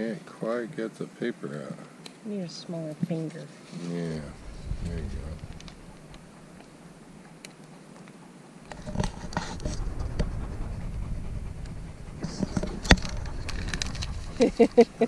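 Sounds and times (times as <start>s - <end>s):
rustling and scratching: 2.8s - 15.0s
dog panting: 3.1s - 15.0s.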